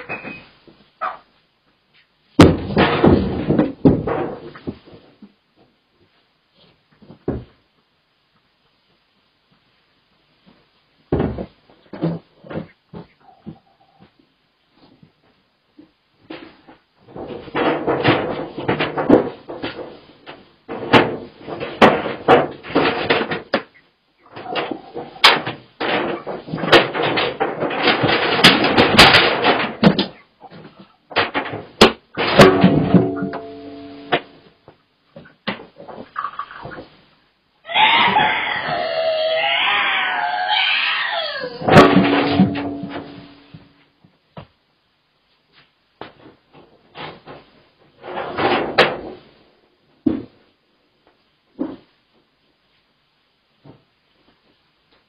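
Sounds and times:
knocks bangs and clatter: 0:02.4 - 0:05.0, 0:17.1 - 0:23.7, 0:24.3 - 0:34.4, 0:41.6 - 0:43.7
dense rattling: 0:31.2 - 0:34.4, 0:41.7 - 0:43.4.

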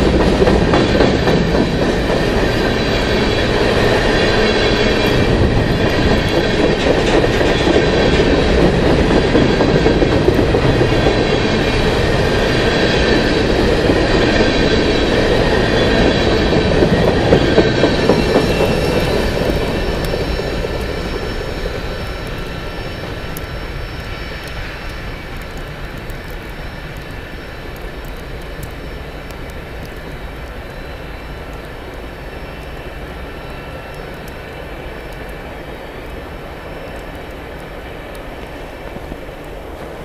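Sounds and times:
high wheel squealing: 0:00.0 - 0:25.2
freight train wheels rumbling on rails: 0:00.0 - 0:40.0
steady rushing noise: 0:00.0 - 0:40.0.

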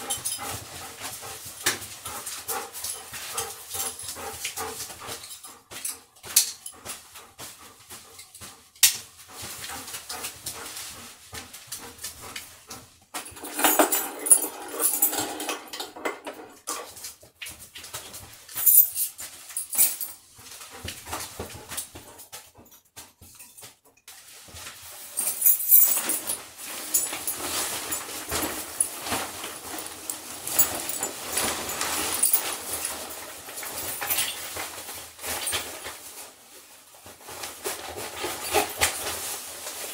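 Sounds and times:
dog tags and leash clips jingling: 0:13.2 - 0:16.2, 0:18.6 - 0:20.1, 0:25.2 - 0:34.6
dogs shuffling: 0:16.6 - 0:39.9.

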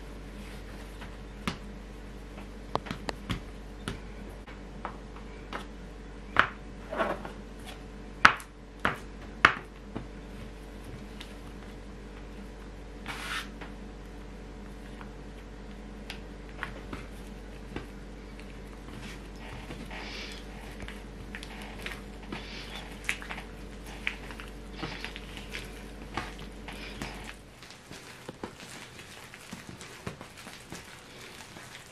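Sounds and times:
dough being kneaded: 0:00.0 - 0:31.9
low background hum: 0:00.0 - 0:31.9
dough scraper scraping: 0:13.0 - 0:13.6, 0:18.8 - 0:28.6.

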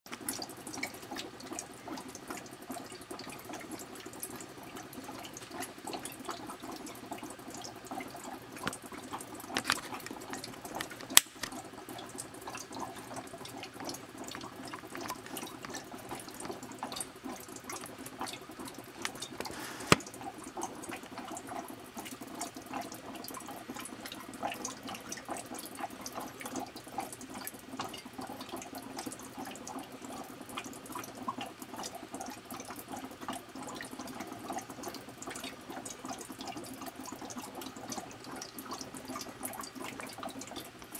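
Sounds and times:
fermenting must fizzing and bubbling: 0:00.1 - 0:40.9
sharp clicks: 0:10.8 - 0:11.5.

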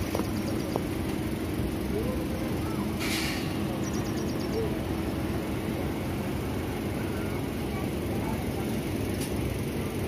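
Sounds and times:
electric train hum: 0:00.0 - 0:10.0
brief hiss: 0:03.0 - 0:03.6.

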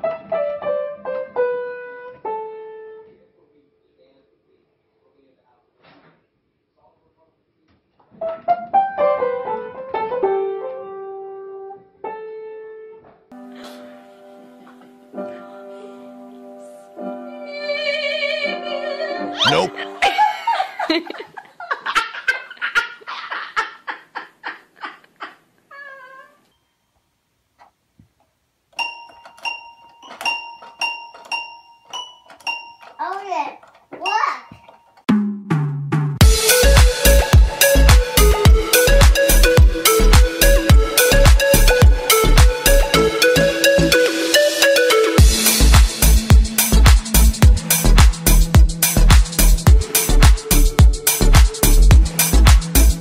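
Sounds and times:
cat pawing piano keys: 0:28.8 - 0:33.0, 0:33.6 - 0:35.1.

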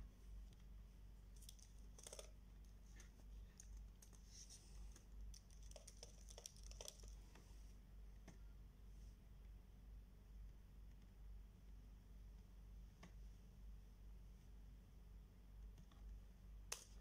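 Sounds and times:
low steady hum: 0:00.0 - 0:17.0
keyboard typing: 0:01.4 - 0:02.3, 0:04.9 - 0:07.2.

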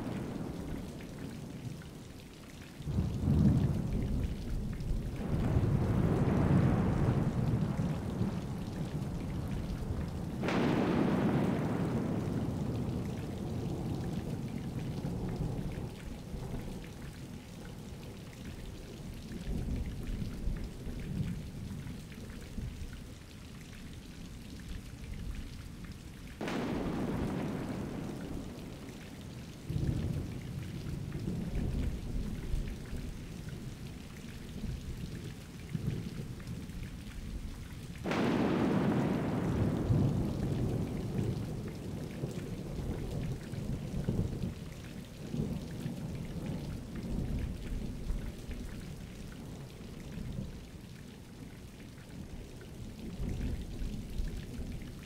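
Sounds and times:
low rolling thunder: 0:00.0 - 0:01.6, 0:02.9 - 0:17.9, 0:26.4 - 0:33.9, 0:38.0 - 0:50.6
steady rain: 0:00.0 - 0:55.0
sharp thunderclaps: 0:10.3 - 0:13.1, 0:26.4 - 0:28.9, 0:38.0 - 0:41.6.

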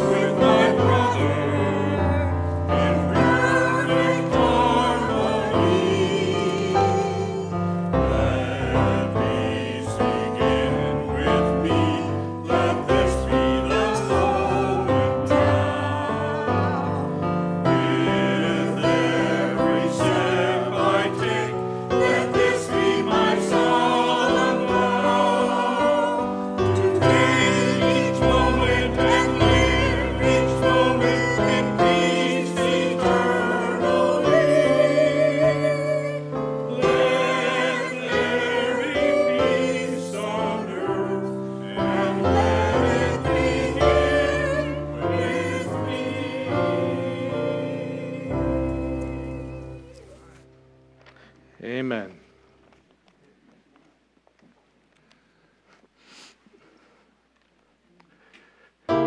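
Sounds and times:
choir singing church music: 0:00.0 - 0:51.2.

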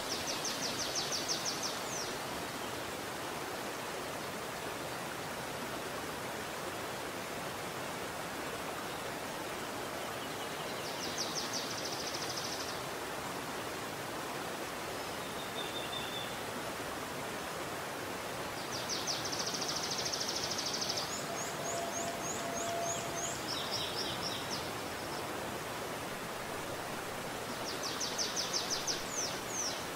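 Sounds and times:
stream flowing over rocks: 0:00.0 - 0:29.9
songbirds trilling: 0:18.8 - 0:25.3.

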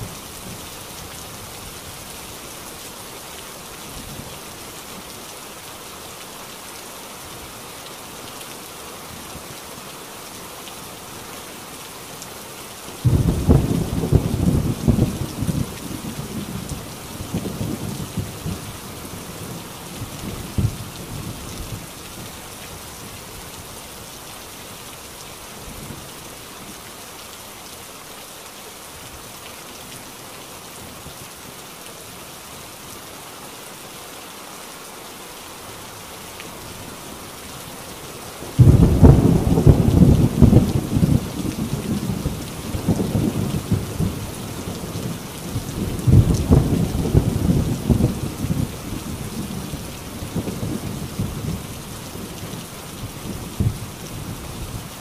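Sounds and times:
heavy rain on a tin roof: 0:00.0 - 0:55.0
loud thunderclap: 0:38.6 - 0:41.2
rolling thunder: 0:38.6 - 0:44.2.

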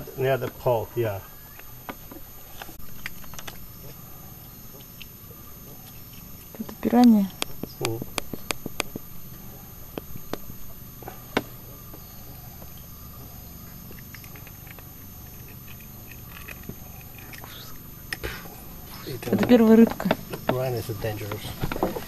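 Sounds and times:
faint background hum: 0:00.0 - 0:22.0
sharp clicks: 0:06.9 - 0:09.1.

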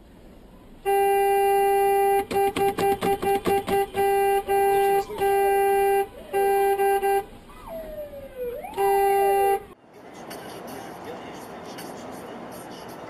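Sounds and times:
car horn honking: 0:00.8 - 0:09.8
sliding rising and falling tones: 0:07.5 - 0:09.0.

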